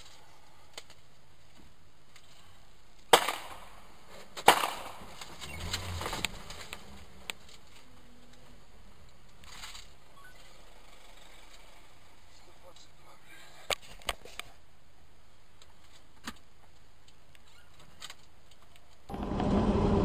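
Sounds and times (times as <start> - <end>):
rough scraping noise: 5.0 - 8.6.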